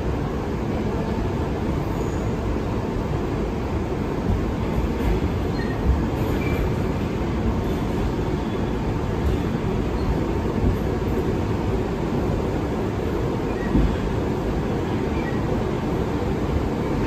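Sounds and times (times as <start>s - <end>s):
wheels rumbling on rails: 0.0s - 17.0s.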